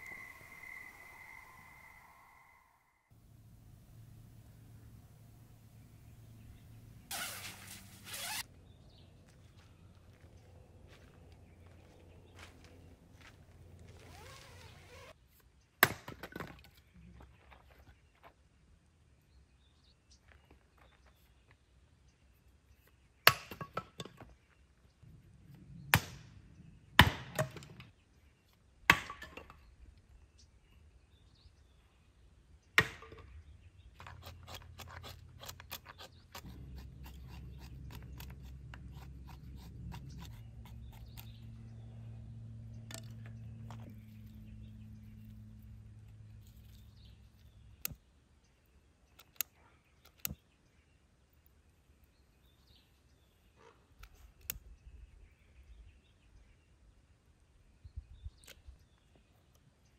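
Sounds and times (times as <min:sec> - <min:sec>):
low steady hum: 0:00.0 - 0:07.1, 0:36.4 - 0:48.8
axe splitting firewood: 0:34.0 - 0:41.6.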